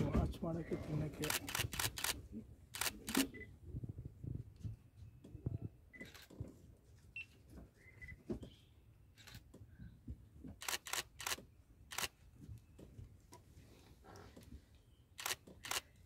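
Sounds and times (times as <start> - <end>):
camera shutters clicking: 1.2 - 2.2, 2.8 - 3.4, 10.6 - 12.1, 15.2 - 15.9.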